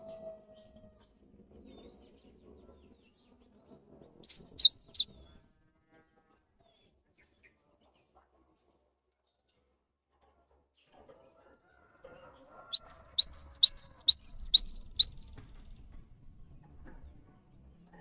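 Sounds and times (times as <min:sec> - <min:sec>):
bird singing two-note phrases: 0:12.8 - 0:15.1.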